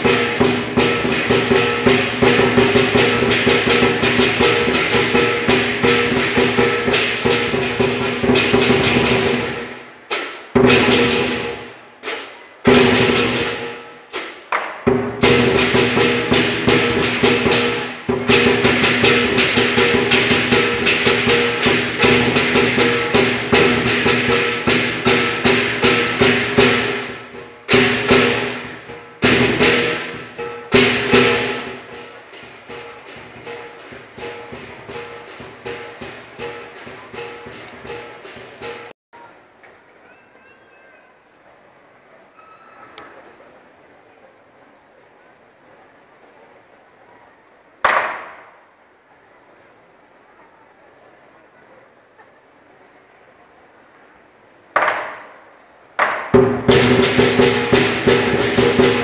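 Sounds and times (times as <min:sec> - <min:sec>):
large drum beating fast: 0:00.0 - 0:09.9, 0:10.5 - 0:11.7, 0:14.8 - 0:39.0, 0:56.0 - 0:59.0
clashing cymbals: 0:00.0 - 0:38.9, 0:56.3 - 0:59.0.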